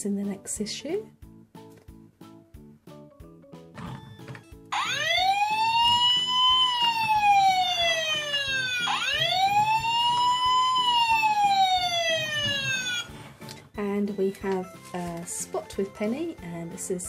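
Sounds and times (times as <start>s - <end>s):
background music with steady beat: 0.0s - 17.0s
toy fire engine electronic siren: 4.7s - 13.2s.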